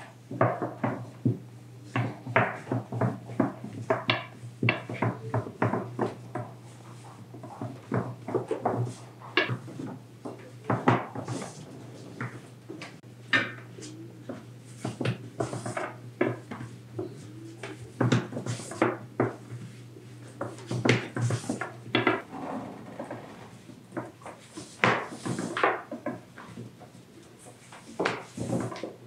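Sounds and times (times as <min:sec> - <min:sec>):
steady low hum: 0:00.0 - 0:24.8
rolling pin knocking on board: 0:00.3 - 0:06.5.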